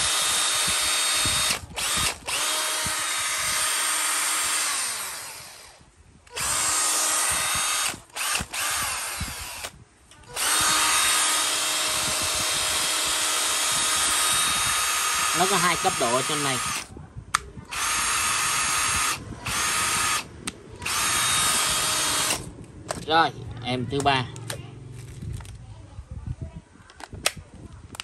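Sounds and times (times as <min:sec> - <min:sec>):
cordless drill motor whine: 0:00.0 - 0:16.9, 0:17.7 - 0:22.5.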